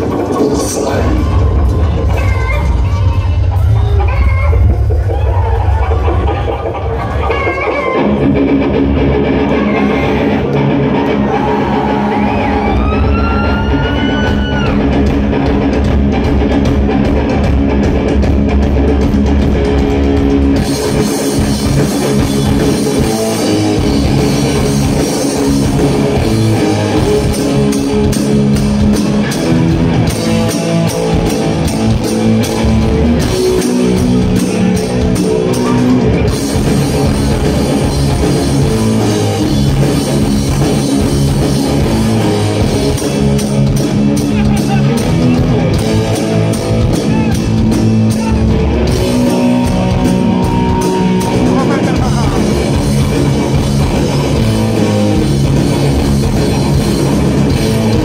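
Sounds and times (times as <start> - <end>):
heavy metal band playing: 0.0 - 58.0.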